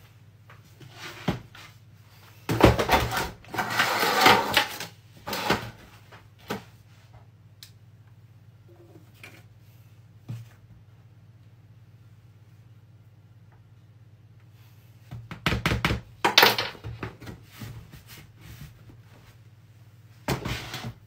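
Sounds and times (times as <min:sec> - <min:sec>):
plastic tub scraping and clattering: 0:02.5 - 0:05.9.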